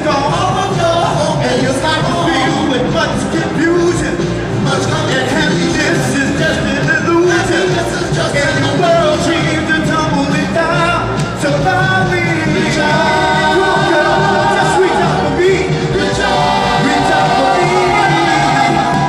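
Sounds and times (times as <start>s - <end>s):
live band accompaniment: 0.0s - 19.0s
soul vocal group singing in harmony: 12.2s - 19.0s.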